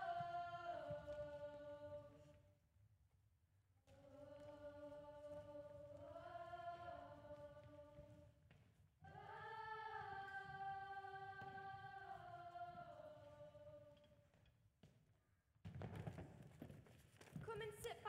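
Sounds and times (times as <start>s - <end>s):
choir singing long notes: 0.0s - 2.2s, 4.0s - 8.1s, 9.0s - 14.0s.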